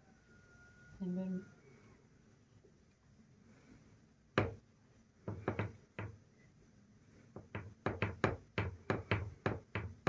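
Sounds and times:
sharp knocks: 0:05.3 - 0:06.2, 0:07.4 - 0:10.0.

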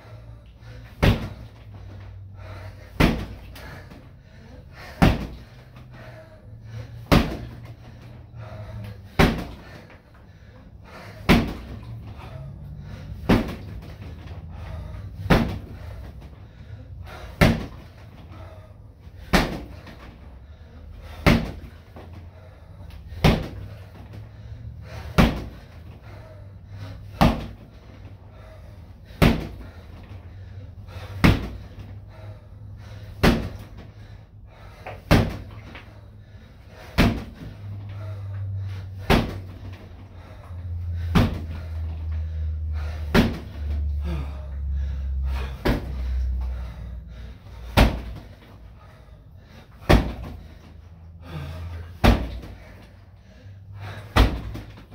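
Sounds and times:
kicks slapping punching bag: 0:00.8 - 0:01.6, 0:02.9 - 0:04.0, 0:04.9 - 0:05.5, 0:07.0 - 0:07.7, 0:09.0 - 0:09.7, 0:11.2 - 0:11.9, 0:13.1 - 0:14.3, 0:15.1 - 0:16.4, 0:17.3 - 0:17.9, 0:19.2 - 0:20.2, 0:21.1 - 0:22.1, 0:23.1 - 0:24.2, 0:25.0 - 0:25.7, 0:27.1 - 0:27.7, 0:29.1 - 0:29.6, 0:31.2 - 0:31.9, 0:33.1 - 0:33.8, 0:34.8 - 0:35.8, 0:36.9 - 0:37.5, 0:39.0 - 0:39.9, 0:41.0 - 0:41.6, 0:43.0 - 0:43.8, 0:45.5 - 0:46.0, 0:47.7 - 0:48.4, 0:49.7 - 0:50.4, 0:51.9 - 0:52.6, 0:54.0 - 0:54.9.

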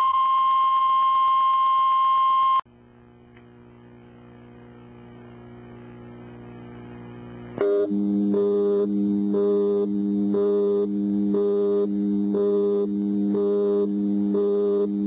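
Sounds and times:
faint low hum: 0:02.7 - 0:15.0
loud steady tones: 0:07.6 - 0:15.0
reference tone: 0:07.6 - 0:15.0.

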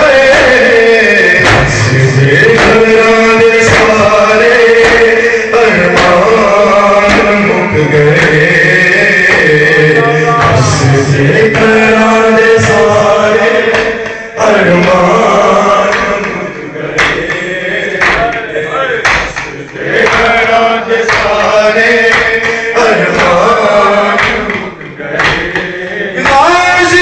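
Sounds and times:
crowd joining in chant: 0:00.0 - 0:27.0
men chanting a lament: 0:00.0 - 0:27.0
chest-beating slaps: 0:01.4 - 0:05.2, 0:07.0 - 0:07.5, 0:15.8 - 0:26.9.

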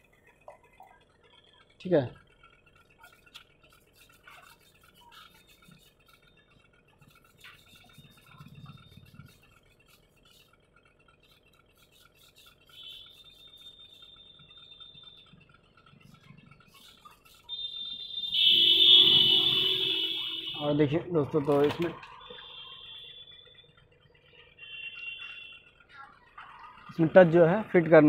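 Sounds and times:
cloth rubbing on glass: 0:03.0 - 0:06.2, 0:06.9 - 0:10.5.

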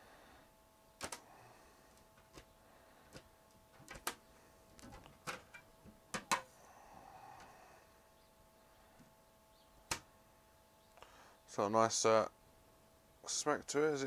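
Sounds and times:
faint steady hum: 0:00.0 - 0:14.0
metal sheet clicking and snapping: 0:01.0 - 0:01.2, 0:03.1 - 0:04.2.

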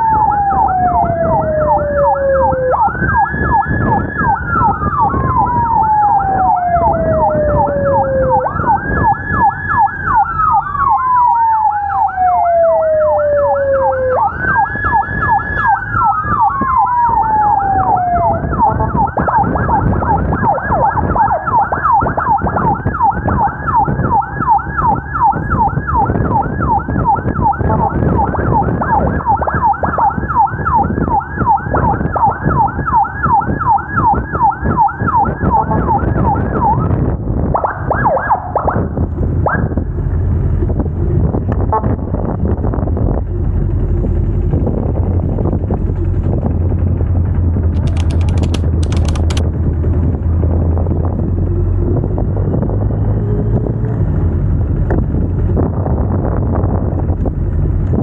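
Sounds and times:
siren yelp: 0:00.0 - 0:39.9, 0:41.1 - 0:42.8
siren wail: 0:00.0 - 0:40.0, 0:41.0 - 0:46.4
engine and road rumble: 0:00.0 - 0:58.0.

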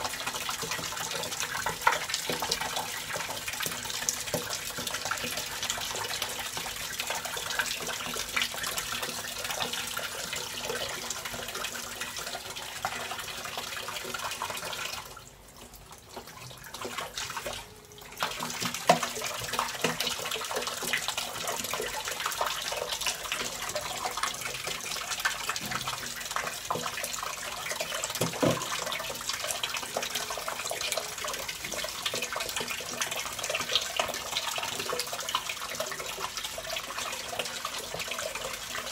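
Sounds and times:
water pouring from a tap: 0:00.0 - 0:38.9.

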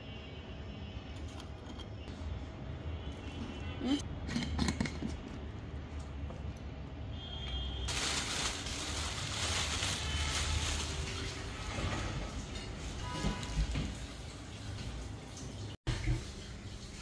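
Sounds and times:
plastic bag rustling: 0:07.9 - 0:13.8.

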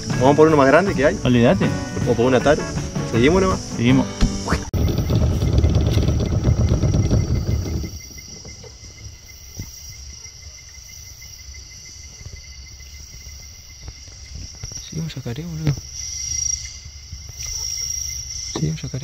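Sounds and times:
crickets and insects trilling: 0:00.0 - 0:19.0.

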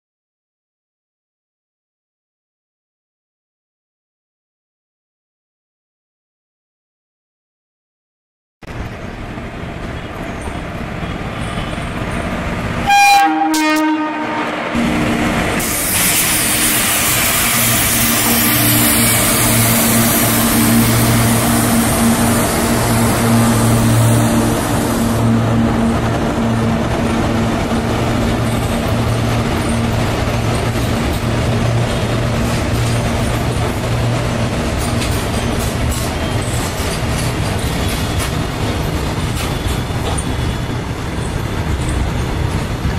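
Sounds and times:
diesel locomotive engine hum: 0:08.6 - 0:42.9
freight train rumbling on track: 0:08.6 - 0:42.9
locomotive air horn blast: 0:12.8 - 0:26.8.

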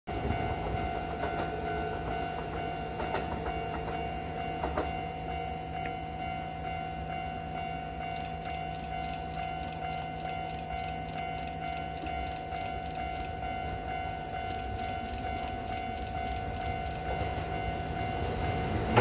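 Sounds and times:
level crossing alarm ringing: 0:00.1 - 0:19.0
train rumble: 0:00.1 - 0:19.0
train wheel clicks: 0:00.2 - 0:05.1, 0:08.0 - 0:17.7.

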